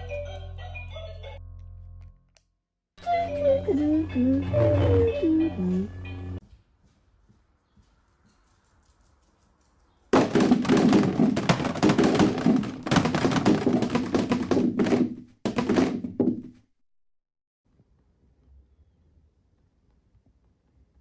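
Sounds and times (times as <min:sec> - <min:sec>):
plastic helmets clattering together: 0:10.1 - 0:16.3.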